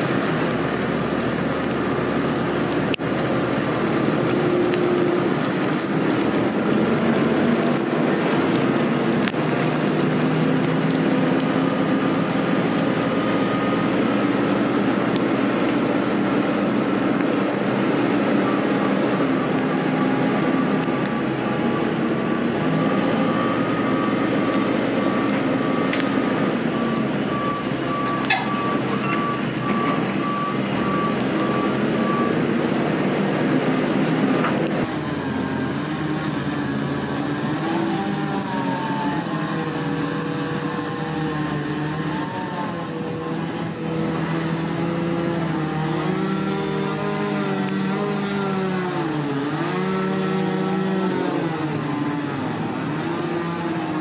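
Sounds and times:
machine engine and hydraulics: 0.0 - 54.0
hydraulic saw cutting trunk: 34.4 - 54.0.

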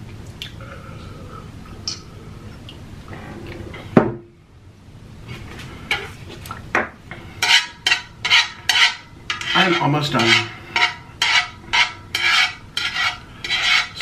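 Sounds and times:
chopsticks scraping a pan: 5.9 - 6.2, 7.1 - 14.0.

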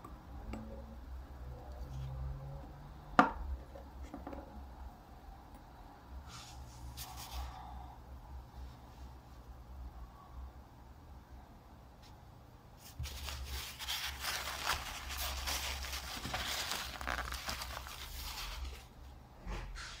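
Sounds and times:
paper towel rustling: 6.3 - 7.5, 12.8 - 18.9.

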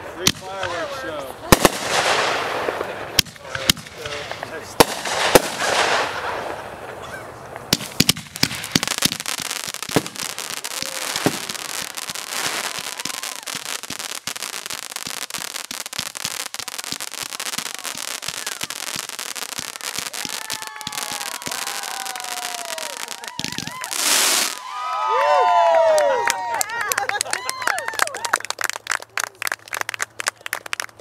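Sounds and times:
firework bang: 0.2 - 6.6, 7.7 - 24.6
firework pops and crackle: 0.2 - 24.6
firework hissing rush: 0.4 - 6.8, 7.7 - 24.8.

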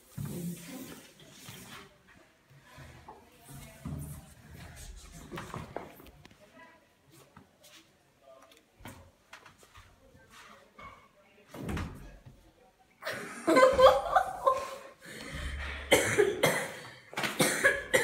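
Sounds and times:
faint knocks and rustles: 7.1 - 12.5
person coughing and vocalizing: 15.9 - 16.8, 17.4 - 18.0.

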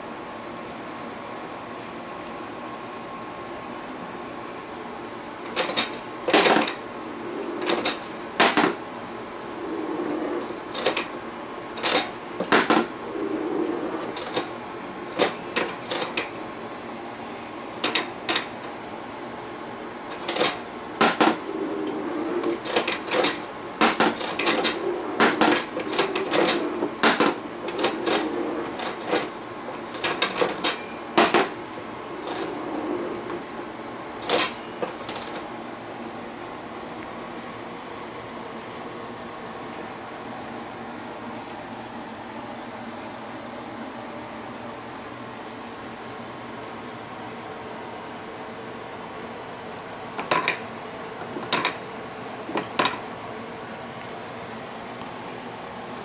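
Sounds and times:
faint steady hum: 0.0 - 56.0
balls rolling across board: 21.0 - 33.5.

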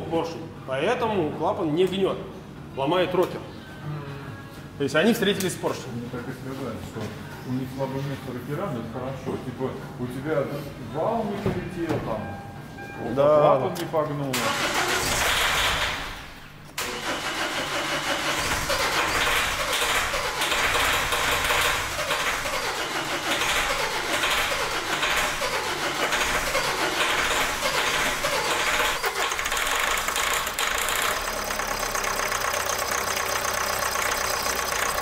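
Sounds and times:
diesel engine revving: 16.8 - 35.0.

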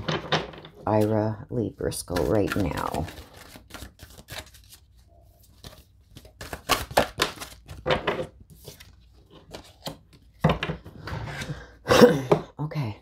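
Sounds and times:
cards being shuffled: 2.0 - 10.3.

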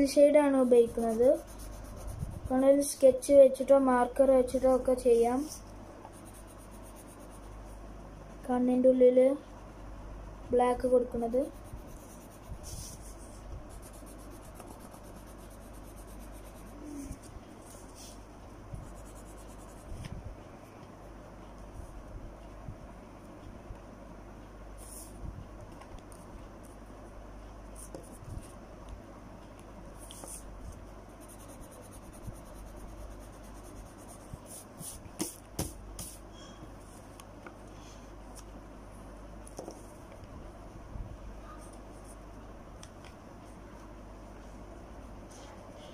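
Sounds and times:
low steady hum: 0.0 - 45.9
pencil scratching on paper: 0.5 - 2.6, 5.4 - 7.7, 11.3 - 18.2, 18.8 - 20.0, 31.1 - 36.2.

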